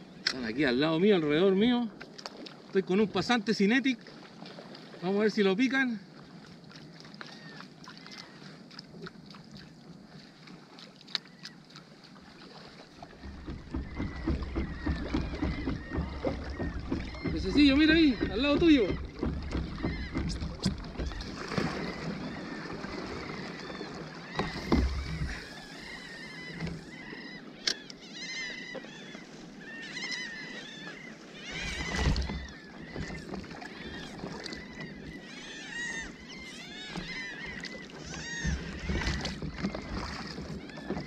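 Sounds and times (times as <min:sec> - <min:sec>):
sea water sloshing around kayak: 0:00.0 - 0:41.0
birds chirping: 0:05.0 - 0:08.7, 0:11.2 - 0:41.0
low knocks: 0:13.2 - 0:21.3.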